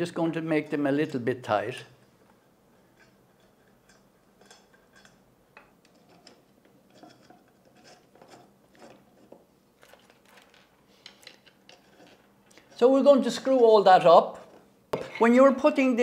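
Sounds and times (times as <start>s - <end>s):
light scrapes of fittings: 2.7s - 5.2s, 5.8s - 12.8s.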